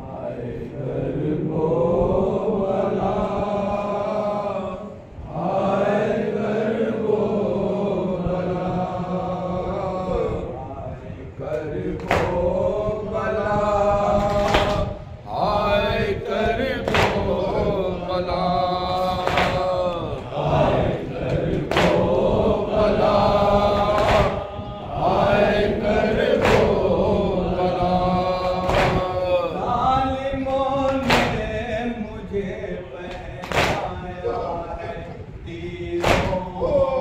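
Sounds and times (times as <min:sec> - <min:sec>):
men chanting in unison: 0:00.0 - 0:37.0
lead reciter on microphone: 0:00.1 - 0:37.0
hands slapping chests: 0:12.0 - 0:12.4, 0:14.2 - 0:14.9, 0:16.9 - 0:17.3, 0:19.2 - 0:19.7, 0:21.2 - 0:22.1, 0:24.0 - 0:24.4, 0:26.4 - 0:26.8, 0:28.4 - 0:29.2, 0:30.9 - 0:31.4, 0:33.4 - 0:33.9, 0:36.0 - 0:36.4.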